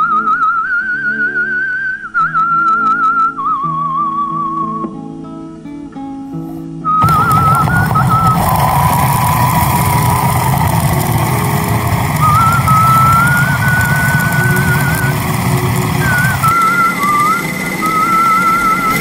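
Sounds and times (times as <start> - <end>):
food processor motor whining: 7.0 - 19.0.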